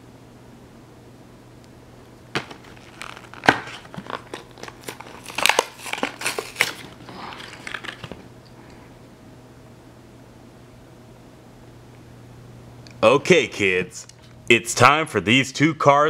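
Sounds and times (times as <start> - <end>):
plastic blister pack crinkling: 2.3 - 8.3.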